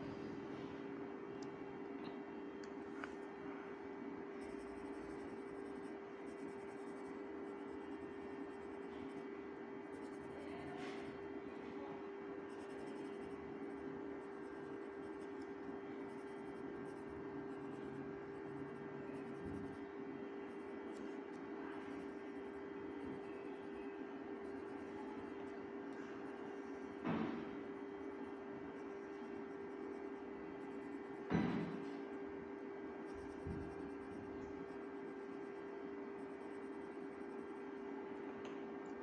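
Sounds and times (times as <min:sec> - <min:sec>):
low electrical hum: 0:00.0 - 0:39.0
pencil scratching on paper: 0:04.4 - 0:11.3, 0:12.4 - 0:26.6, 0:28.2 - 0:37.8.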